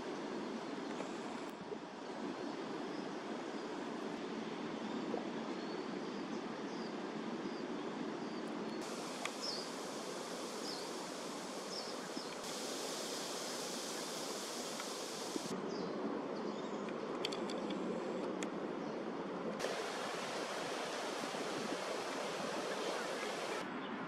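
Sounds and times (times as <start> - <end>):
steady hiss: 0.0 - 3.7, 8.8 - 15.6, 19.6 - 23.6
faint bird chirps: 9.0 - 15.8
light clicks: 9.1 - 9.5, 14.6 - 15.0.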